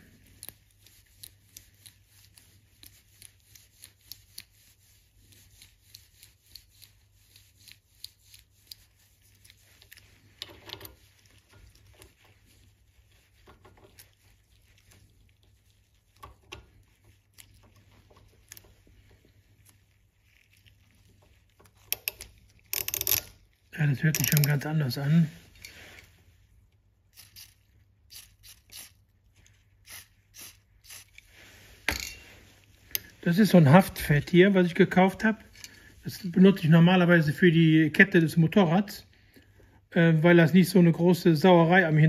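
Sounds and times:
small metallic ratchet clicks: 21.8s - 23.4s, 24.1s - 24.6s.

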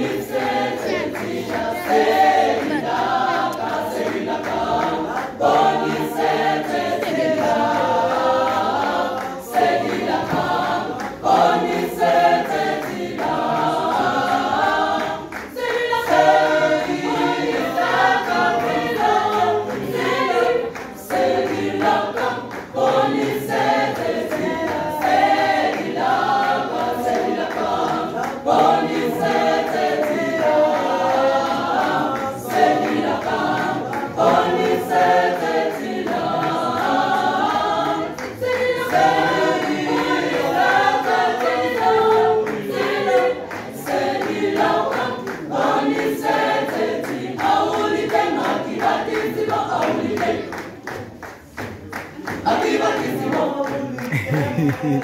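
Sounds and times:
choir singing a cappella: 0.0s - 55.0s.

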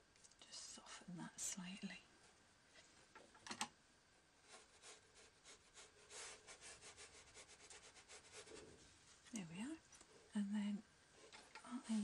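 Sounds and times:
paintbrush strokes on paper: 4.4s - 9.4s.

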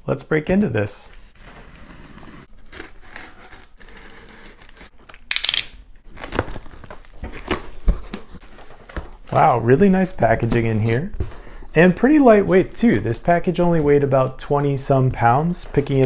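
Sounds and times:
packing tape tearing: 2.5s - 8.3s
cardboard flaps scraping and crinkling: 6.1s - 9.4s.

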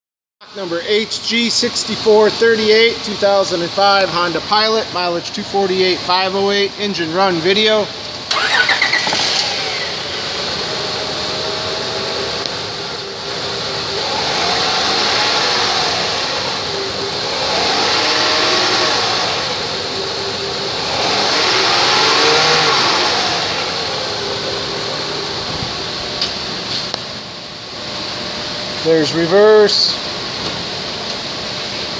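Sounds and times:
car engine starting and idling: 0.6s - 28.2s
engine revving: 8.3s - 26.4s.

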